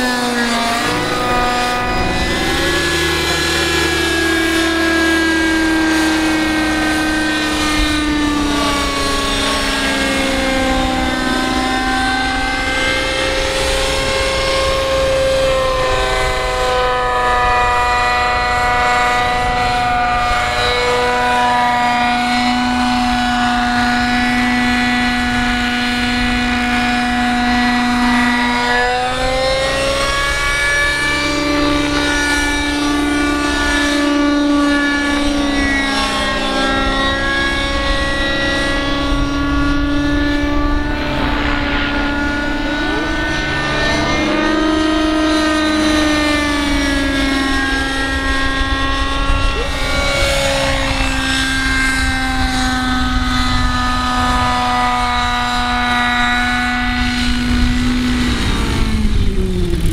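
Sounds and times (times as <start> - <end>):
model helicopter rotor whine: 0.0 - 59.9.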